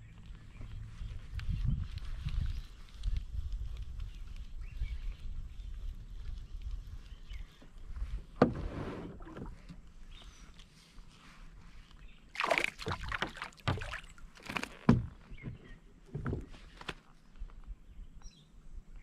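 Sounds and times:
fish splashing water: 12.3 - 14.7.

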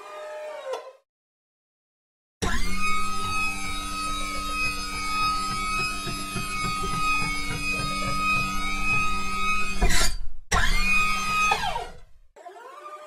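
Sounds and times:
mechanical whine: 2.4 - 9.9
low pulsing throb: 2.8 - 9.8.

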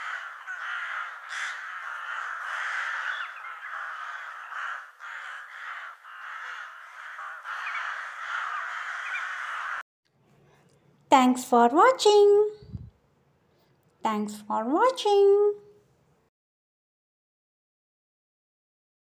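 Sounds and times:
crows cawing: 0.0 - 9.8.

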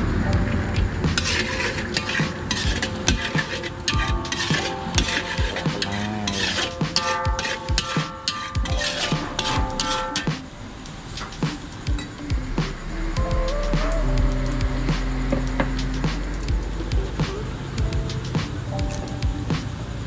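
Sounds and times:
light sizzle: 0.0 - 20.0
metal spatula scraping a wok: 1.1 - 11.8.

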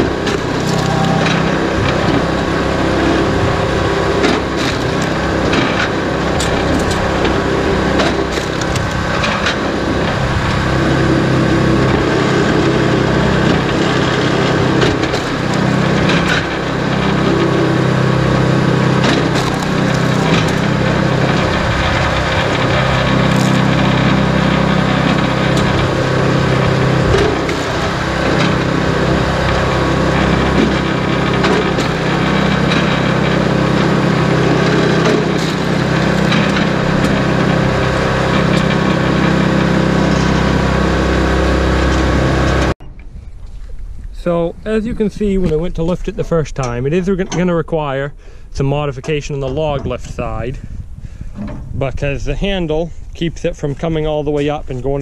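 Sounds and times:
firewood cracking and splintering: 0.0 - 42.8
small gas engine running: 0.0 - 42.8.

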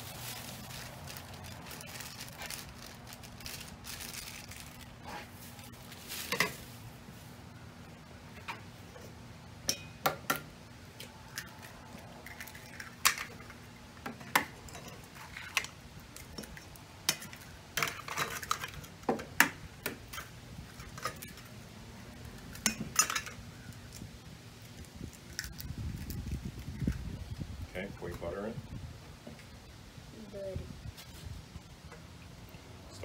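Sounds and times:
eggs cracking on metal bowl: 11.3 - 21.5.

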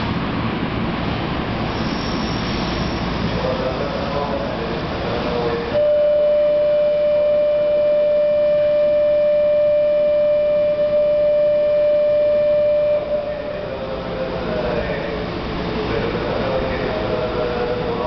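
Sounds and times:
steady electronic tone: 5.7 - 13.9.

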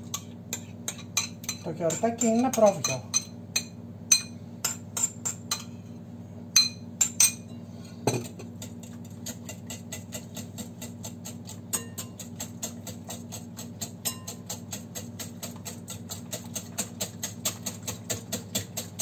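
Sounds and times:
whisk beating in glass bowl: 0.1 - 5.6, 8.1 - 19.0
metal spoon clinking bowl: 0.1 - 5.7, 6.6 - 8.3, 9.2 - 12.9, 13.8 - 14.8.

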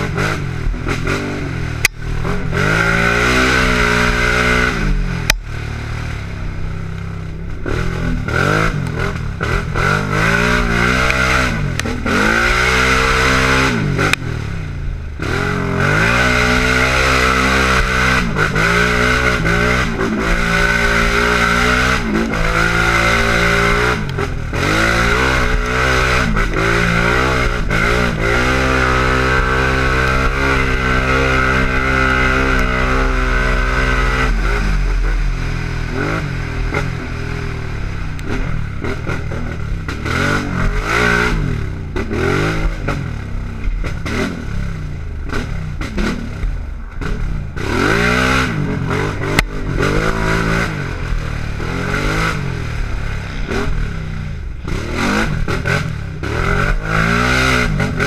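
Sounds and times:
clatter over rough ground: 0.0 - 58.0
quad engine revving: 0.0 - 58.0.

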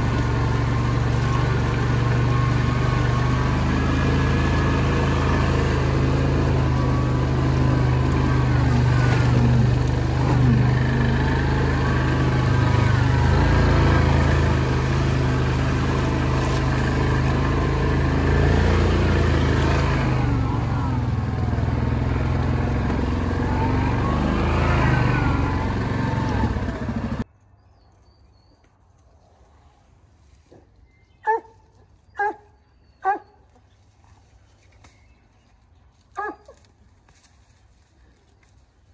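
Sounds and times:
quad bike engine running: 0.0 - 27.2
dog barking: 31.2 - 31.6, 32.2 - 33.4, 36.2 - 36.5.

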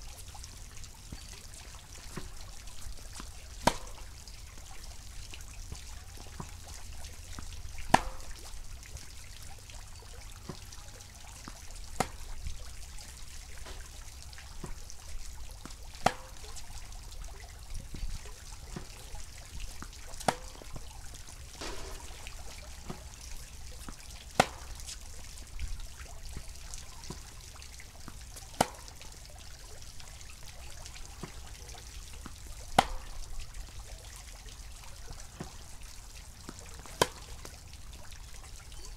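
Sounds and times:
ball bouncing on far court: 3.2 - 4.2, 7.3 - 8.5, 10.4 - 10.8, 11.8 - 14.0, 15.6 - 16.7, 19.8 - 25.0, 28.6 - 29.0, 32.2 - 33.3, 36.5 - 37.5
tennis ball struck by racket: 3.6 - 4.1, 7.9 - 8.4, 12.0 - 12.4, 13.6 - 13.9, 16.0 - 16.4, 20.2 - 20.8, 21.4 - 23.2, 23.9 - 25.0, 32.8 - 33.2, 36.8 - 37.3.

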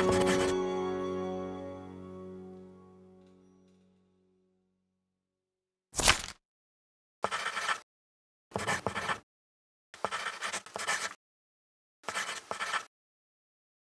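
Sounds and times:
pen scribbling on paper: 0.1 - 0.5, 7.2 - 7.8, 8.5 - 9.2, 10.0 - 11.2, 12.0 - 12.9.

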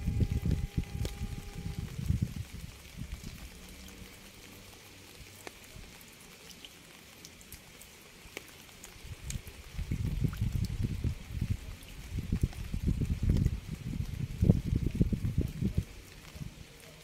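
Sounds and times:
low rumble: 0.0 - 3.5
rain hiss: 0.0 - 17.0.

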